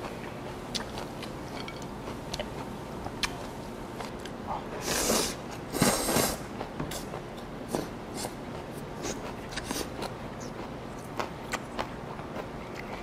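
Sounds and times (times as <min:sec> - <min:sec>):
person slurping food: 0:04.8 - 0:06.4.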